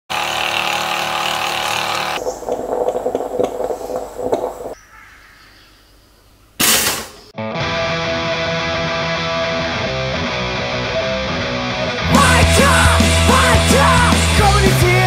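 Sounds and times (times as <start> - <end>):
moka pot sputtering and gurgling: 0.1 - 4.8.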